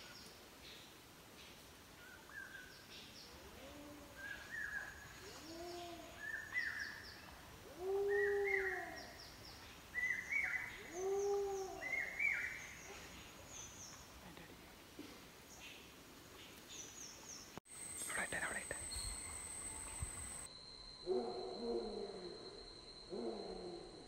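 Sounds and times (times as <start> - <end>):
birds chirping: 15.5 - 20.5.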